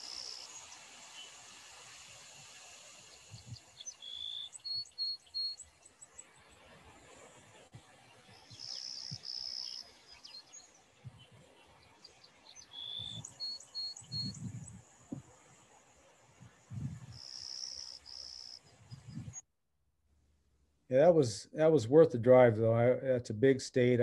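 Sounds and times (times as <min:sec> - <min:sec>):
high bird chirps: 0:00.0 - 0:01.4, 0:02.9 - 0:05.6, 0:08.4 - 0:11.3, 0:12.0 - 0:14.8, 0:17.1 - 0:19.4
sparrow singing buzzy song: 0:00.0 - 0:06.6, 0:07.5 - 0:15.6, 0:16.3 - 0:19.4.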